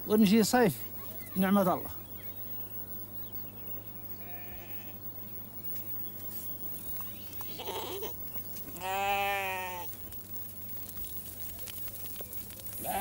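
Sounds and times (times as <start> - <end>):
sheep and goats bleating: 4.1 - 5.0, 7.4 - 10.0, 12.7 - 13.0.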